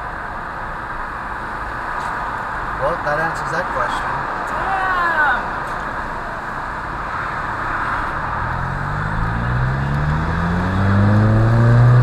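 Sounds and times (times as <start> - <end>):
road and tyre noise: 0.0 - 12.0
car engine rising in pitch: 8.0 - 12.0.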